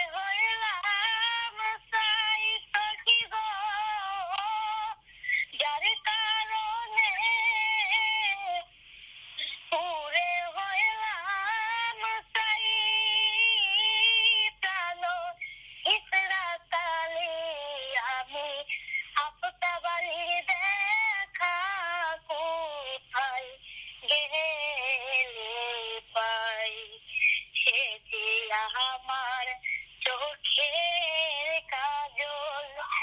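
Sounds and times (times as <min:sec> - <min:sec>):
high-pitched altered voice singing: 0:27.6 - 0:33.0.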